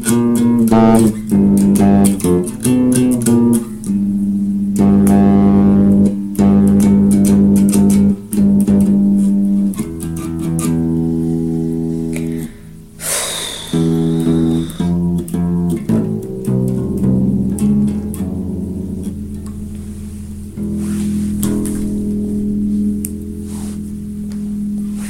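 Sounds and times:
electric bass guitar notes: 0.0 - 25.0
rush of hiss: 13.0 - 14.9.

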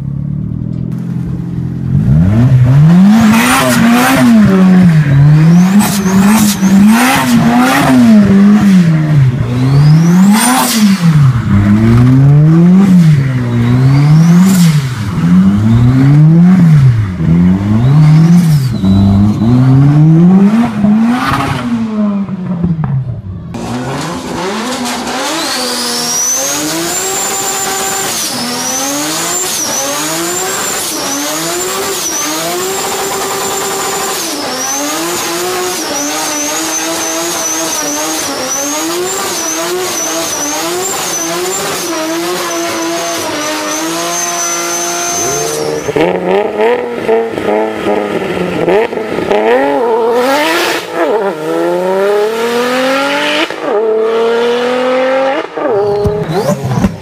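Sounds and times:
car engine revving: 0.0 - 57.0
car accelerating through gears: 2.0 - 22.6, 23.5 - 57.0
turbo whistle: 5.0 - 7.8, 17.7 - 19.7, 35.8 - 46.1.

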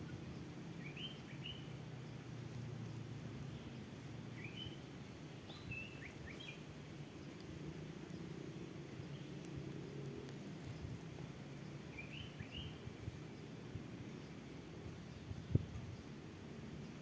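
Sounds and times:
small bird chirping: 0.0 - 2.2, 4.4 - 8.4, 11.5 - 13.5.

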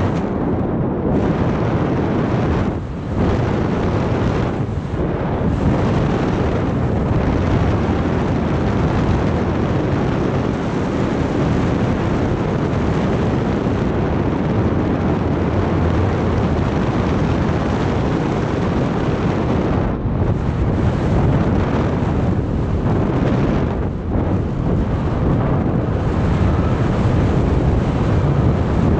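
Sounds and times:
wind buffeting microphone: 0.0 - 28.9.

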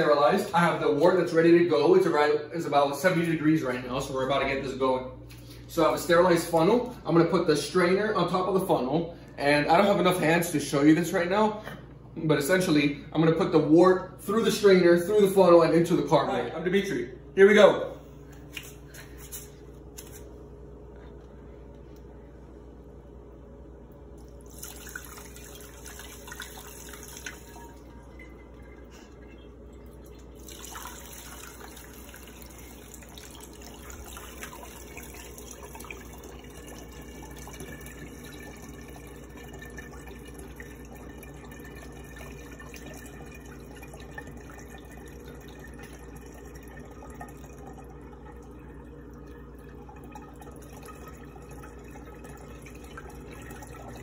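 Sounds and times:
liquid trickling and splashing: 24.2 - 54.0.

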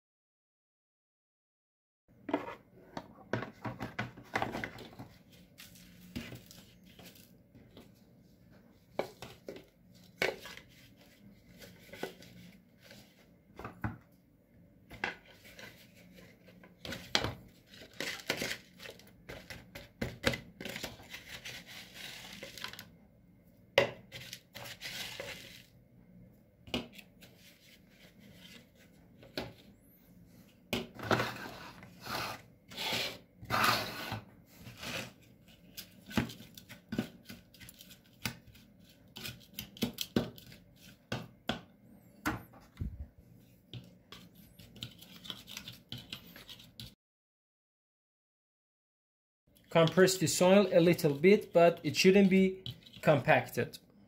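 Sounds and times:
trowel scraping soil: 31.2 - 35.2.

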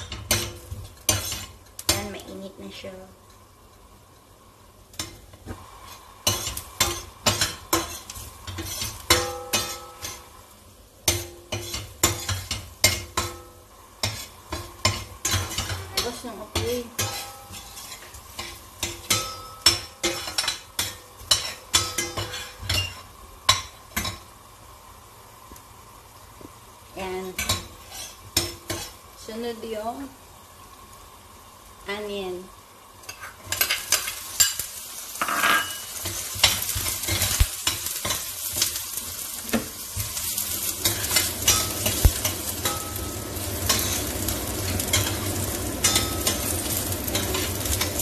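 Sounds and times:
metal spatula scraping frying pan: 0.0 - 2.1, 5.0 - 10.3, 11.1 - 24.2, 27.3 - 29.0, 33.1 - 48.0
oil sizzling: 0.0 - 48.0.

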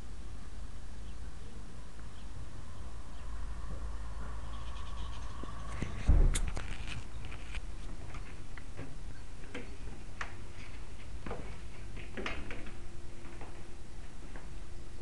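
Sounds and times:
low rumble: 1.4 - 8.5
camera knocked thump: 6.0 - 6.5.

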